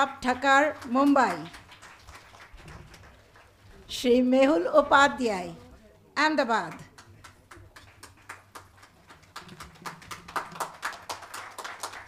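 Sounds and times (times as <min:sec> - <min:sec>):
audience applause: 0:00.7 - 0:03.8, 0:06.9 - 0:12.0.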